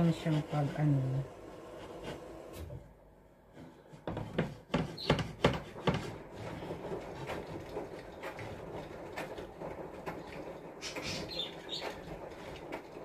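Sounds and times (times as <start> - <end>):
knife sawing through cake: 3.8 - 8.6
sharp clicks and knocks: 4.0 - 13.0.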